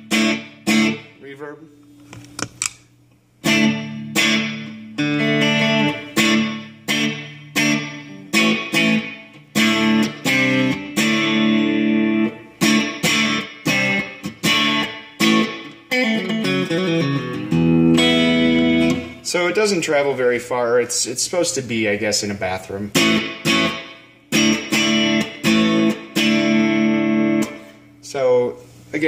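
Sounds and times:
electric guitar strumming chords: 0.0s - 1.3s, 3.4s - 20.0s, 22.9s - 28.0s.

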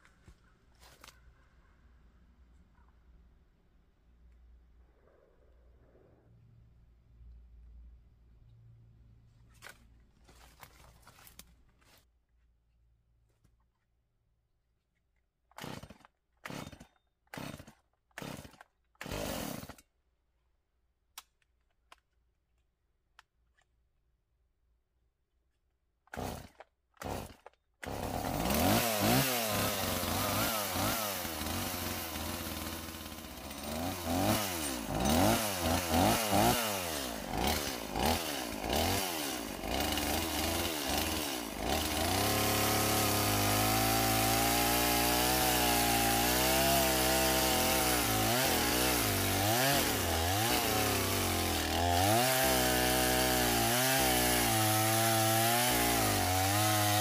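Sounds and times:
chainsaw cutting into tree: 15.6s - 19.8s, 26.1s - 57.0s
chainsaw starting and revving: 15.6s - 19.9s, 26.1s - 57.0s.

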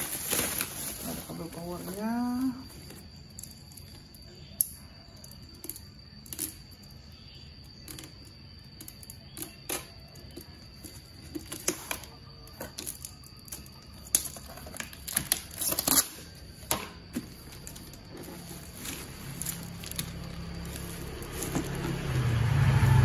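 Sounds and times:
cardboard scraping and rustling: 0.0s - 2.0s, 14.3s - 22.2s
utility knife slitting tape: 15.1s - 16.3s.

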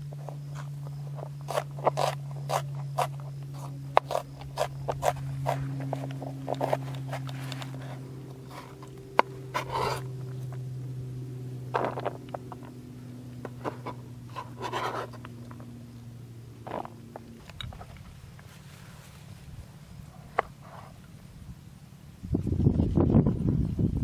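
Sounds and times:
low hum: 0.0s - 24.0s
knife scraping cutting board: 1.5s - 8.8s, 9.5s - 10.1s, 13.6s - 15.2s.

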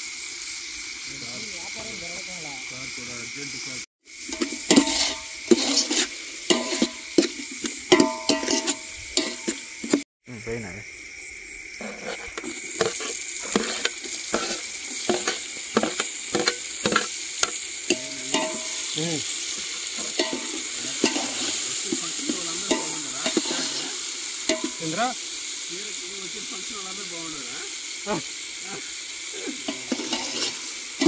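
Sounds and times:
vegetables sizzling in oil: 0.0s - 31.0s
ladle stirring and clicking on pot: 4.3s - 10.0s, 11.8s - 23.9s, 24.5s - 24.9s, 29.6s - 31.0s.

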